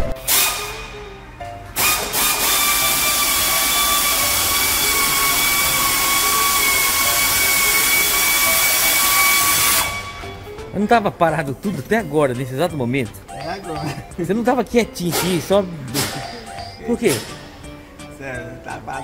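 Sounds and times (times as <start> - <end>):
machine whining: 0.0 - 10.6
loud hiss: 1.8 - 10.2.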